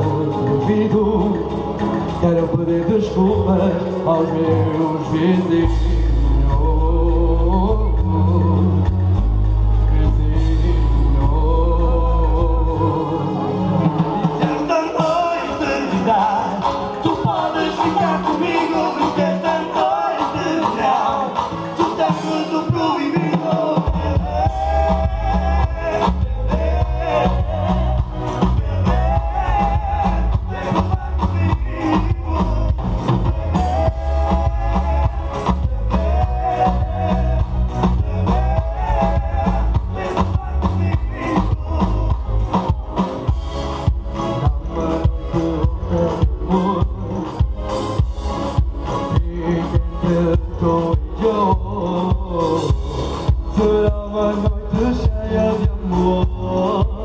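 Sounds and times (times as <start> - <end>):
heavy bass: 0.0 - 57.0
live band through pa system: 0.0 - 57.0
steady drum beat: 13.9 - 57.0.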